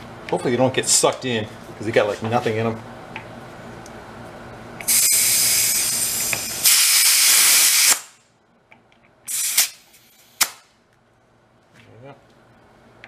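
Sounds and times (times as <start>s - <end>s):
compressed air hissing into tire: 4.8s - 8.1s, 9.3s - 10.5s.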